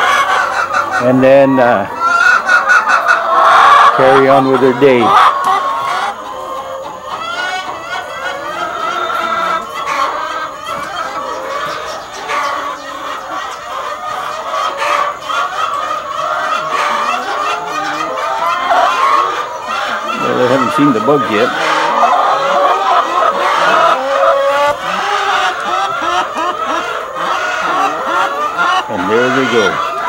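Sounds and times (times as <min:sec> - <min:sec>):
hens clucking and calling: 0:00.0 - 0:30.0.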